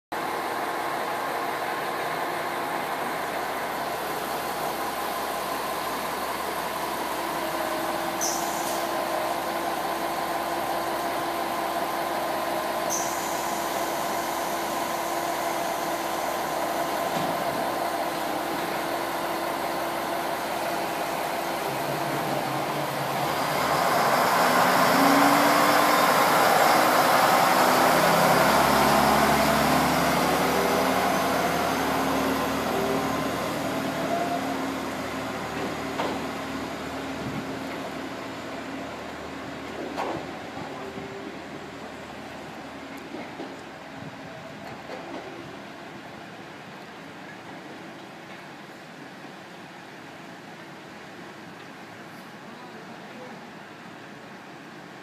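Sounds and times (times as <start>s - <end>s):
diesel engine idling: 0.2s - 44.6s
diesel engine revving up: 3.8s - 42.8s.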